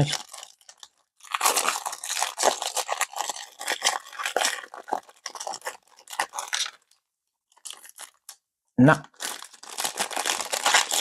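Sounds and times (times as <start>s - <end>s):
wrapper crinkling and tearing: 0.0s - 8.4s, 9.0s - 11.0s.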